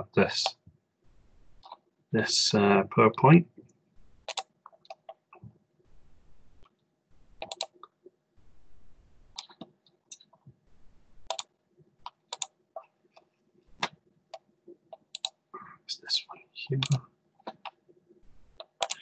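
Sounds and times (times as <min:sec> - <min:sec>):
computer mouse clicks: 0:04.2 - 0:05.2, 0:07.4 - 0:07.9, 0:11.2 - 0:12.6, 0:13.2 - 0:15.4, 0:16.8 - 0:17.8, 0:18.6 - 0:19.0
keyboard clicks: 0:04.3 - 0:05.2, 0:07.4 - 0:07.9, 0:11.2 - 0:12.5, 0:13.2 - 0:15.4, 0:16.8 - 0:17.8, 0:18.6 - 0:19.0.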